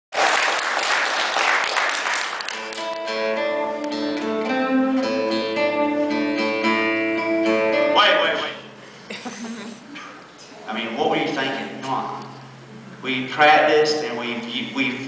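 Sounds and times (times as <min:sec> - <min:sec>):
live band with strummed guitars: 0:02.4 - 0:10.5.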